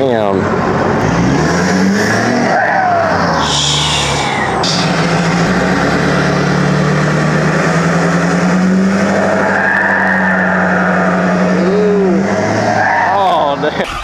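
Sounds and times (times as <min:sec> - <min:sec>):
diesel engine drone: 0:00.0 - 0:14.0
high turbo whistle: 0:02.4 - 0:05.2.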